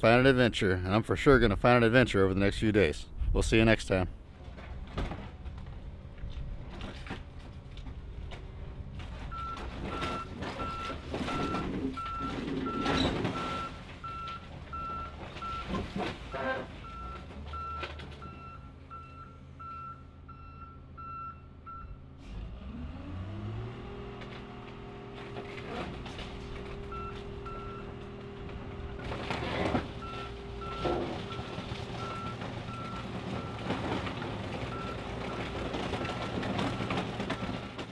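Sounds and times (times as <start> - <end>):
diesel engine revving: 20.5 - 37.9.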